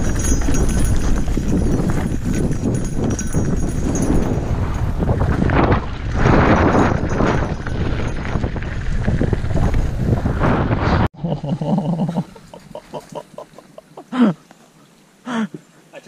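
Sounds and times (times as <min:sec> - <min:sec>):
bike tyres rumbling on dirt: 0:00.0 - 0:11.1
wind buffeting microphone: 0:00.0 - 0:11.1.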